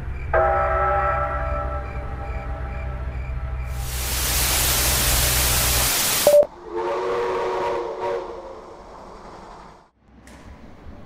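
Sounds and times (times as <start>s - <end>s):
television static hiss: 3.8s - 6.5s
train whistle: 4.8s - 8.8s
short beep: 6.3s - 6.5s.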